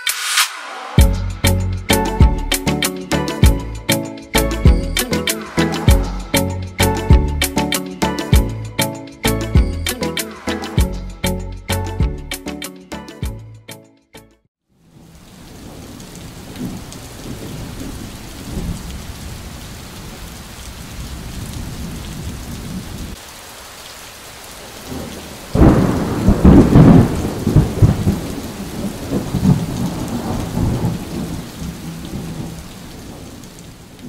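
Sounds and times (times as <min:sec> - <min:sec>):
rain: 0:00.1 - 0:08.6, 0:14.7 - 0:34.0
thunder rumbling: 0:15.5 - 0:23.2, 0:24.8 - 0:34.0.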